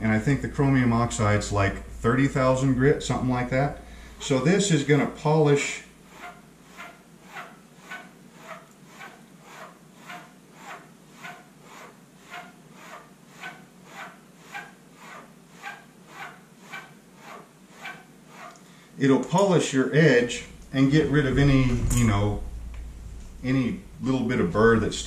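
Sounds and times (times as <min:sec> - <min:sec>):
razor stropping on canvas: 0:06.0 - 0:18.6.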